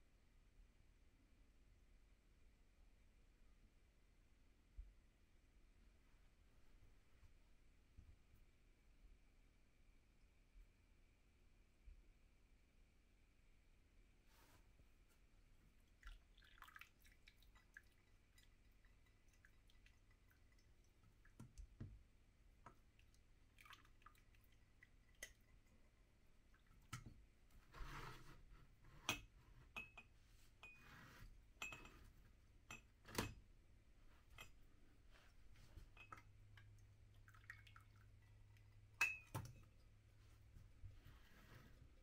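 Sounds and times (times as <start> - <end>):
faint low hum: 0.0 - 42.0
coffee dripping through filter: 15.7 - 27.8, 35.6 - 40.2
ceramic clinks and knocks: 39.0 - 39.6.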